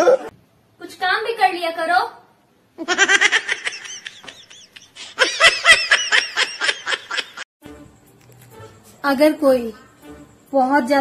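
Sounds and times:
high-pitched laughter: 2.8s - 7.4s.

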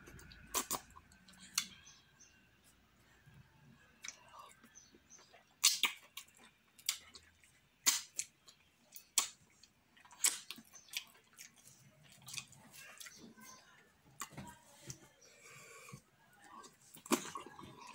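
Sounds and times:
wet mouth smacks: 5.6s - 6.0s.

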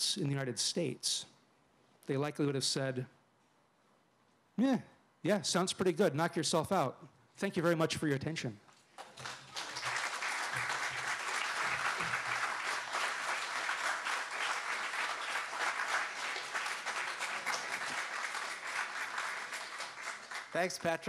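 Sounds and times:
audience applauding: 9.0s - 21.0s.

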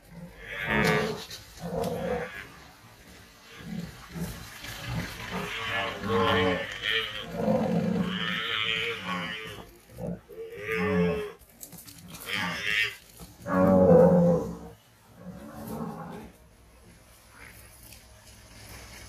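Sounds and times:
water buffalo calling: 4.7s - 11.4s.

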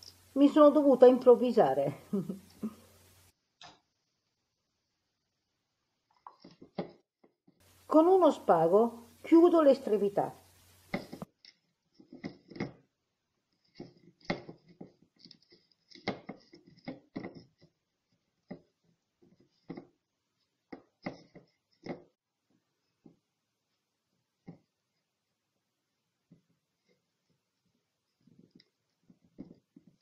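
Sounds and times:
rustling and tapping of string: 6.1s - 7.6s, 10.8s - 12.9s, 13.5s - 25.1s, 26.2s - 30.0s.

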